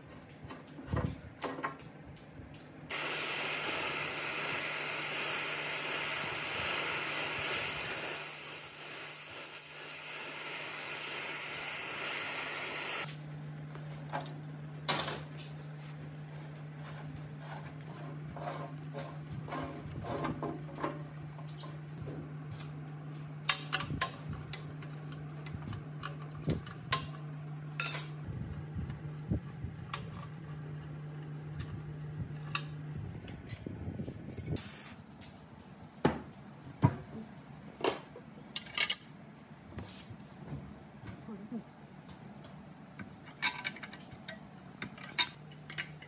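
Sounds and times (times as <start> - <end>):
steady low hum: 0.0 - 38.4.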